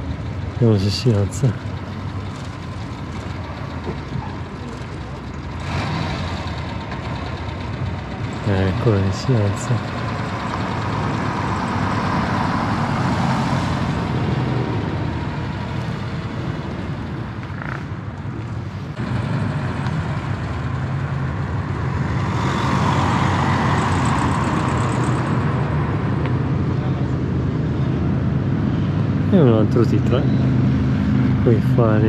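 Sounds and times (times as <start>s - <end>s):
traffic noise: 0.0s - 32.0s
vehicle engine running: 0.0s - 32.0s.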